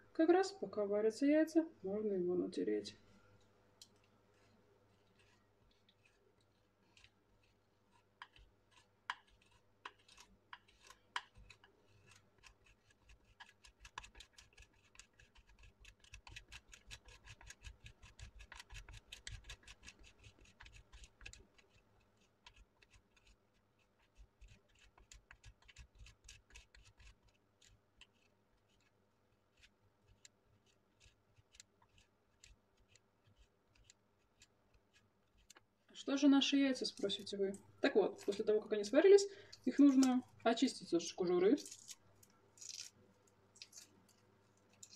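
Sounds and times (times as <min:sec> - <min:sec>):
cheese grated on metal grater: 0:04.3 - 0:35.6.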